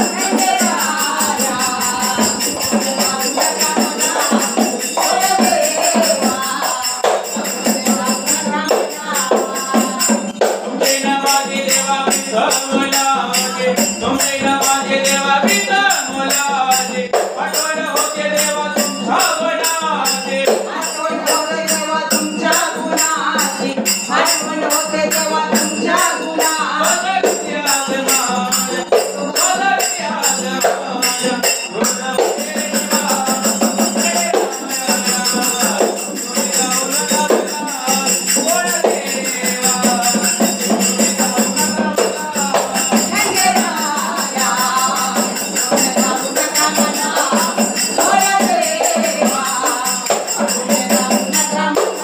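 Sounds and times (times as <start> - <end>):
fast jingling percussion: 0.0 - 52.0
woman singing devotional song: 0.0 - 52.0.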